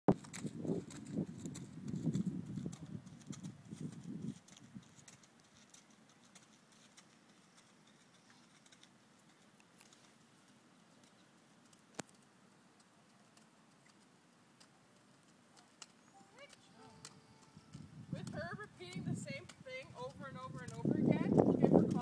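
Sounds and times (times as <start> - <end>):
horse hoofbeats on sand: 0.1 - 8.8, 15.1 - 22.0
low rumbling on microphone: 20.0 - 22.0.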